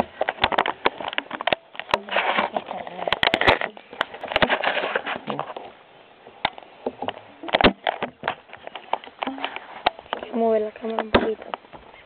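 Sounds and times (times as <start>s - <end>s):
camera handling rustle: 0.1s - 5.8s.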